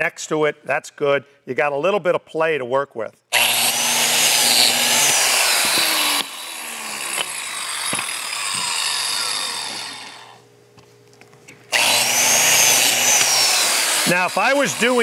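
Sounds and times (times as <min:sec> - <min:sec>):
power tool motor running: 0:03.3 - 0:10.5, 0:11.7 - 0:15.0
blade winding down whine: 0:03.4 - 0:10.4, 0:11.7 - 0:15.0.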